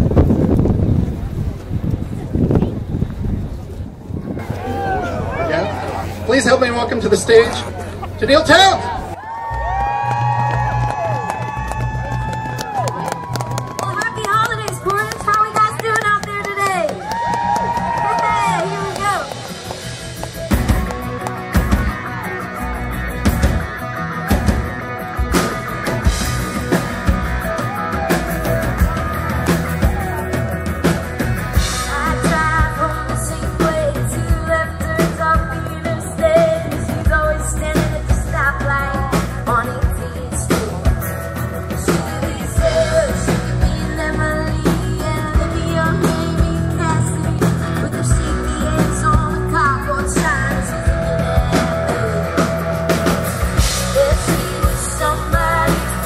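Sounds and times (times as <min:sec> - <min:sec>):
live rock band playing: 0:04.4 - 0:56.0
woman singing: 0:31.8 - 0:41.1, 0:41.7 - 0:52.6, 0:53.9 - 0:56.0.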